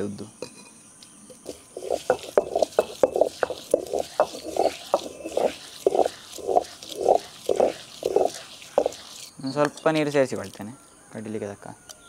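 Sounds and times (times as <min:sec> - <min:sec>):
grains cracking clicks: 0:01.4 - 0:09.3
stone grinder rhythmic grinding: 0:01.4 - 0:09.3.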